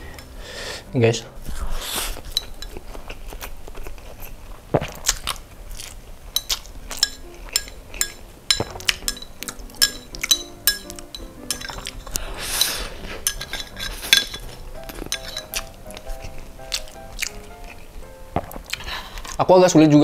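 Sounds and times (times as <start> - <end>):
background music: 0.0 - 2.0, 6.8 - 20.0
chopsticks clinking on a plate: 2.3 - 2.9, 6.4 - 17.0.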